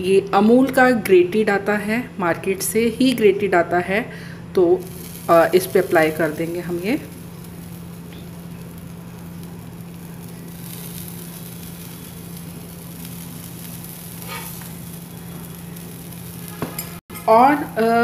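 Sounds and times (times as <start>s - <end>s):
pizza sizzling in a pan: 4.8s - 18.0s
spoon scraping: 14.2s - 14.8s.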